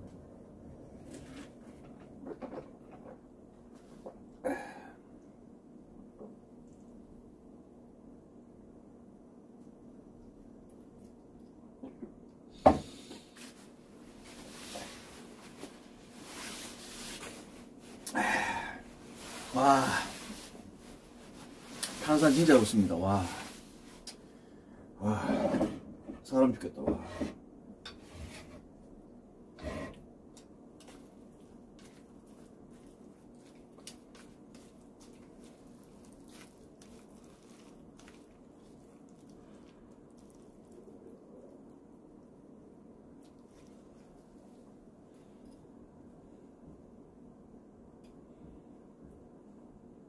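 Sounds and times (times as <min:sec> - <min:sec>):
soft rustling: 0:13.3 - 0:18.0, 0:18.9 - 0:24.2, 0:30.8 - 0:40.9
wet squishing of vegetables: 0:30.7 - 0:42.4, 0:43.1 - 0:45.2.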